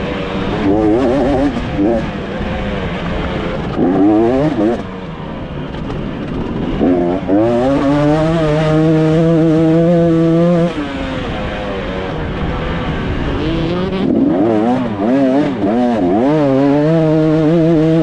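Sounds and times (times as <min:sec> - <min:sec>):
two-stroke engine revving: 0:00.0 - 0:18.0.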